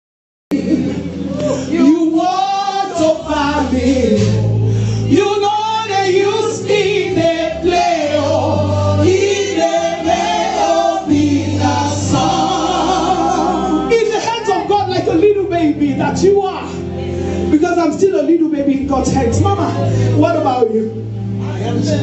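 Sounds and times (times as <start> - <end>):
choir singing: 0.5 - 4.6, 5.3 - 14.8
lead voice singing: 0.5 - 15.3
band accompaniment: 0.6 - 20.1.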